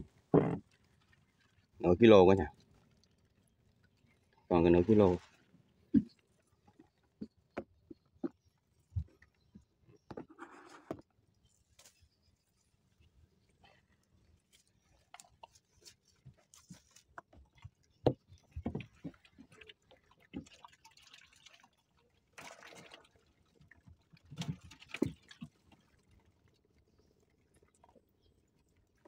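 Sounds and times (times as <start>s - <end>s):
water splashing: 0.0s - 7.3s, 15.2s - 29.0s.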